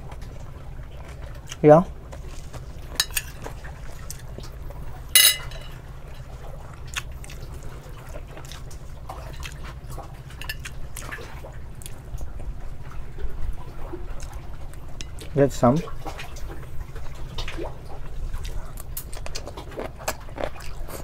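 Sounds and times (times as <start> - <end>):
steady low hum: 0.0 - 19.3
wet chewing and lip-smacking: 0.1 - 5.0, 6.1 - 12.6, 13.8 - 15.4, 16.0 - 21.0.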